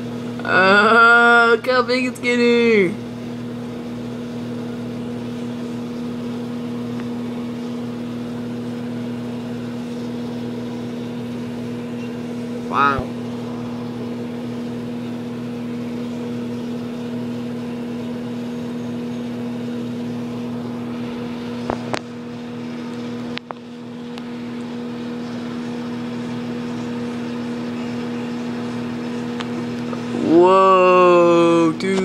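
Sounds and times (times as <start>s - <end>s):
microwave oven humming: 0.0s - 32.0s.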